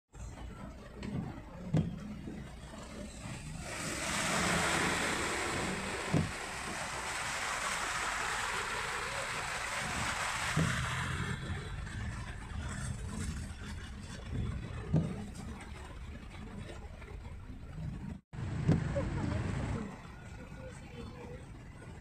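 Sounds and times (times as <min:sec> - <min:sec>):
low engine rumble: 0:00.2 - 0:22.0
floodwater rushing against car: 0:00.3 - 0:17.7, 0:18.4 - 0:21.9
heavy rain: 0:02.6 - 0:14.9, 0:18.4 - 0:21.2.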